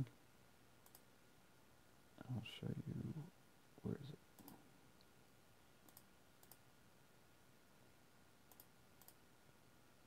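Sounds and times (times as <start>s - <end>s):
computer mouse clicks: 0.8s - 1.1s, 4.4s - 5.1s, 5.8s - 6.6s, 8.5s - 9.2s.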